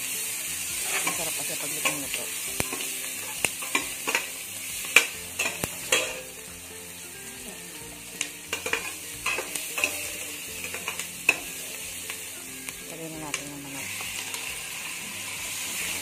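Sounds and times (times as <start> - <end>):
garlic and onion sizzling in oil: 0.0 - 16.0
spatula scraping a pan: 0.4 - 12.7.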